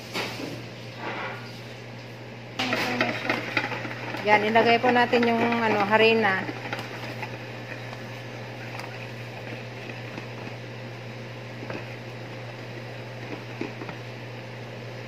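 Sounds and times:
low machine hum: 0.0s - 15.0s
whisk clicking against bowl: 2.6s - 10.6s.

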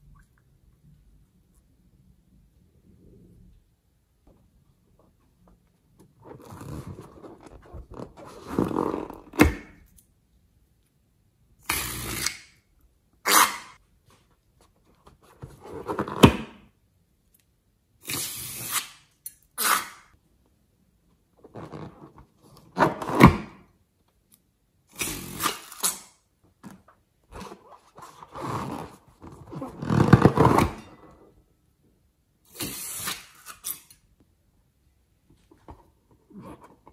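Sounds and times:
scissors snipping balloons: 24.9s - 26.1s.

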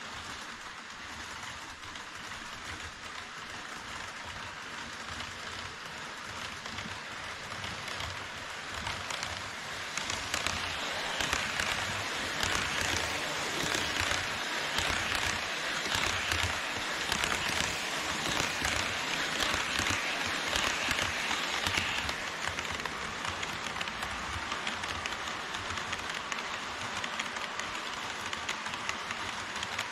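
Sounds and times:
fine rail clicks: 0.0s - 29.9s
model train wheels on rail: 0.0s - 29.9s.

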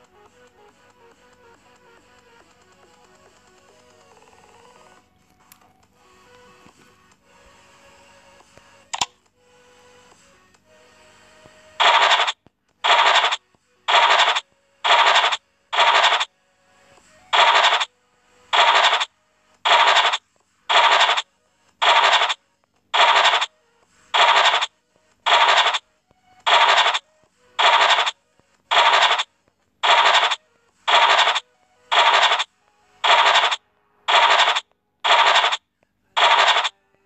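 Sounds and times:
scratching sound effect: 11.8s - 16.3s, 17.4s - 17.9s, 18.6s - 19.1s, 19.7s - 22.4s, 23.0s - 23.5s, 24.2s - 24.7s, 25.3s - 25.8s, 26.5s - 27.0s, 27.6s - 35.6s, 36.2s - 36.7s.

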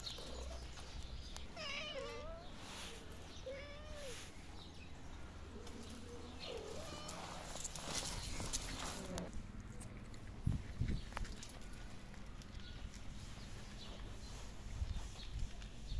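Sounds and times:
cats meowing: 1.3s - 4.4s, 6.3s - 8.1s.

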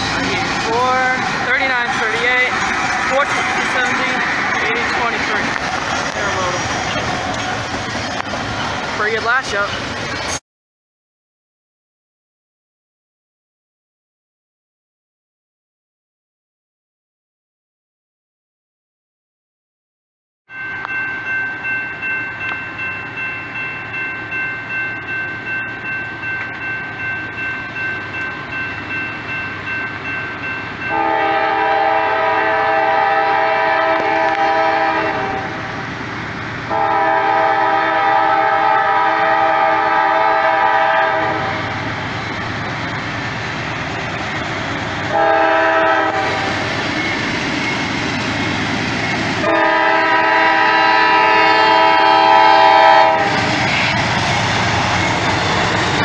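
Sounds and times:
crossing bell dinging: 0.0s - 7.5s, 20.5s - 32.3s
locomotive air horn blasts: 30.9s - 35.6s, 36.7s - 41.7s, 45.1s - 46.5s, 49.4s - 53.5s.

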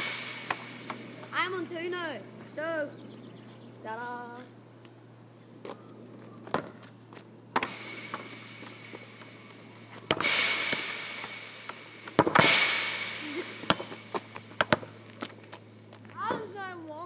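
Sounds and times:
loud ringing crashes: 0.0s - 2.4s, 7.6s - 15.3s
football kicks and bounces: 12.1s - 12.5s, 13.6s - 15.3s.

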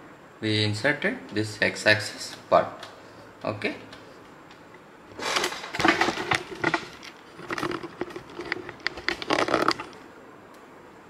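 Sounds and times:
rustling and clicks of handling: 2.3s - 10.7s.

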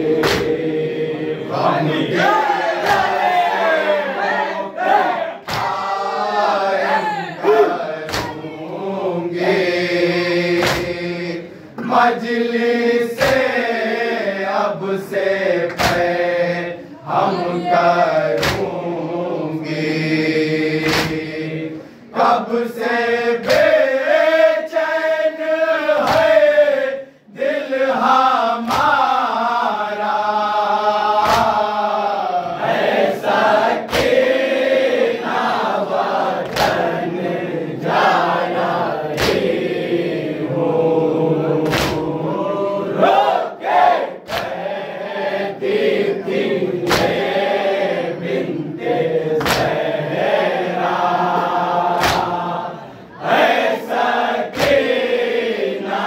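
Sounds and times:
men singing a lament: 0.0s - 56.0s.

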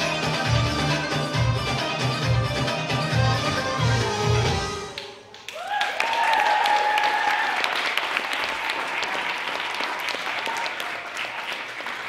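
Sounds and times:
audience applauding: 5.0s - 12.0s
long high cheer: 5.4s - 12.0s.

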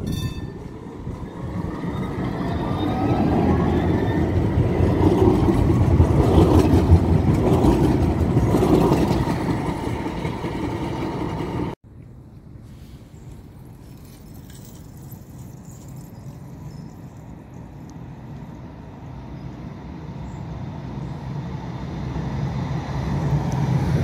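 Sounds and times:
tram motors whining: 0.0s - 11.8s
tram wheels rumbling on rail: 0.0s - 11.8s, 13.4s - 24.0s.

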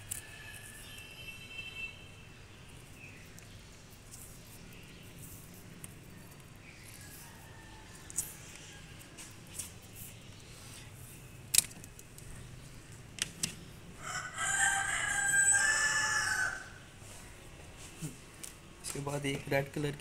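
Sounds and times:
rooster crowing: 7.1s - 9.3s, 14.0s - 16.9s
sharp clicks: 11.5s - 12.3s.

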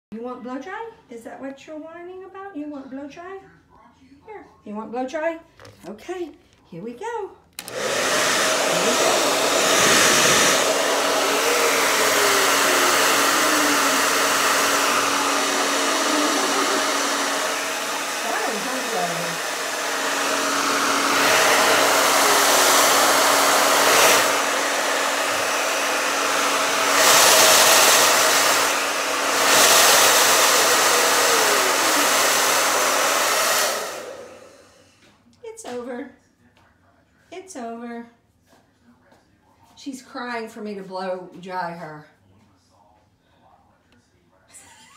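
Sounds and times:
hair dryer blowing: 7.6s - 35.0s.

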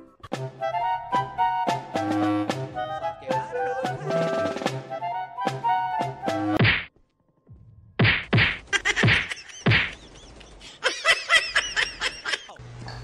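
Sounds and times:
plush toy thwacks: 6.6s - 6.9s, 8.0s - 9.9s.

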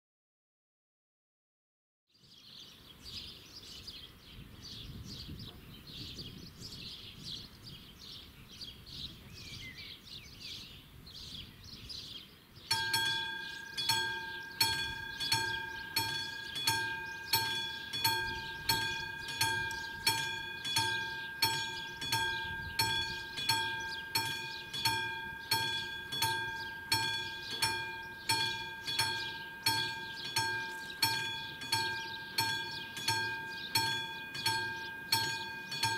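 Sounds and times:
birds chirping: 2.1s - 35.9s
level crossing warning bell: 12.7s - 35.9s.

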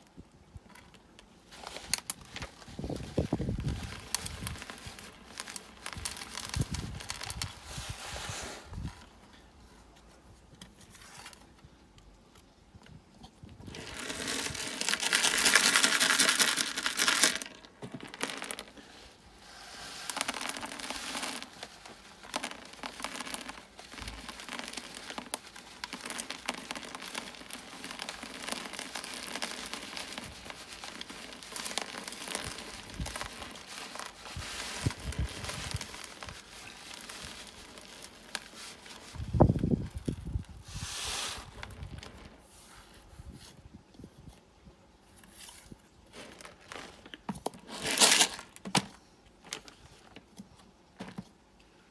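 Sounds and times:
bag crinkling and rustling: 0.7s - 9.3s, 13.4s - 43.0s, 45.2s - 51.4s
grit pouring hiss: 1.5s - 9.1s, 13.6s - 43.2s
grit trickling: 19.6s - 40.4s.

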